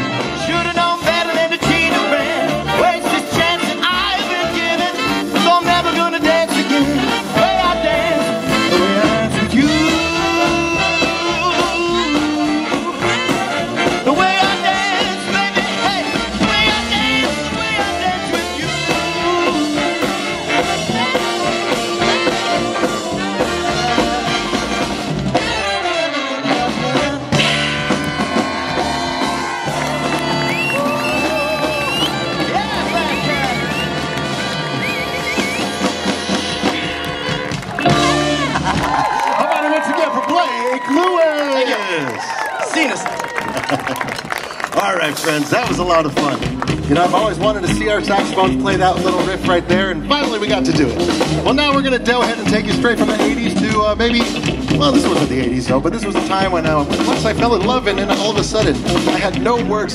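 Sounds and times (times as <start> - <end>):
saxophones and brass: 0.0 - 40.4
swing band playing: 0.0 - 59.9.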